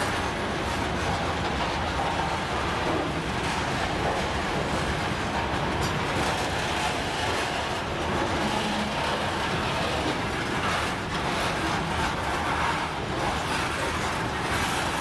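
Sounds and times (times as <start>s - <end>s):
train wheels on rails: 0.0s - 15.0s.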